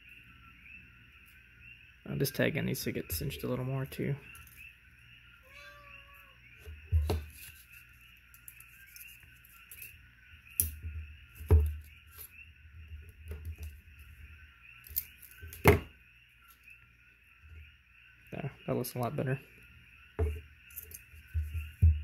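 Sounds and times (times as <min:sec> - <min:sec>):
steady high-pitched hiss: 0:00.0 - 0:22.0
hand tools knocking on wooden table: 0:20.2 - 0:20.4.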